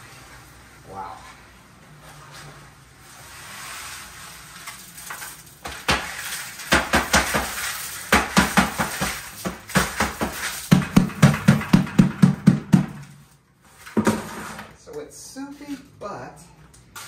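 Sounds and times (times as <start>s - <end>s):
knocks on plastic bucket: 8.2s - 13.0s.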